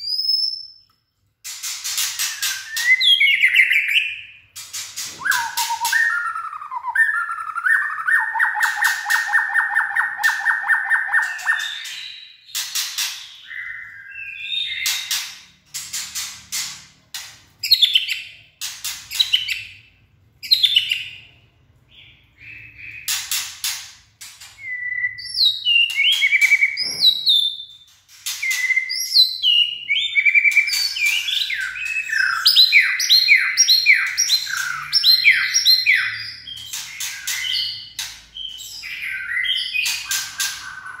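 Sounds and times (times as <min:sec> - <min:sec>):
bird singing clicks and whistles: 0:00.0 - 0:04.0, 0:04.7 - 0:13.6.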